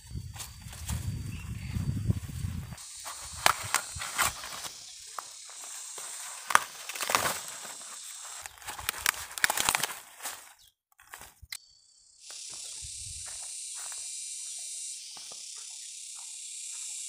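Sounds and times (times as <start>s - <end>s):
dry corn leaves rustling: 0.0s - 11.5s
steady high hiss: 2.2s - 8.4s
corn ears snapping off: 3.0s - 11.6s.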